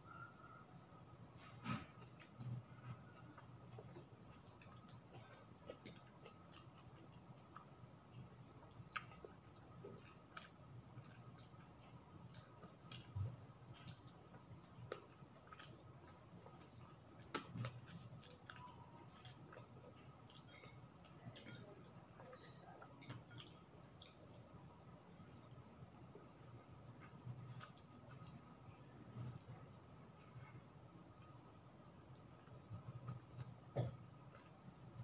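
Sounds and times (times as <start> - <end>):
person chewing: 1.3 - 7.7, 8.4 - 24.4, 27.0 - 28.5, 29.1 - 30.4.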